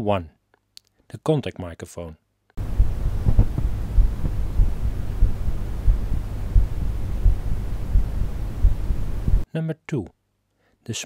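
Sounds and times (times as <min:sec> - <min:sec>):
heartbeat thuds: 0:02.6 - 0:09.4
steady low rumble: 0:02.6 - 0:09.4
faint hiss: 0:02.6 - 0:09.5.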